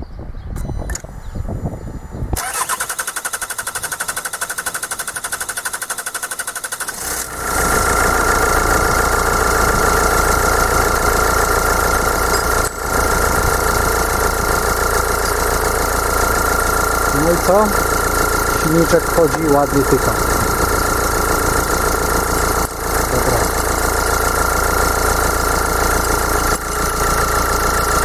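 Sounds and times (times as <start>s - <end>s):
diesel engine idling: 1.4s - 28.0s
starter cranking diesel engine: 2.3s - 28.0s.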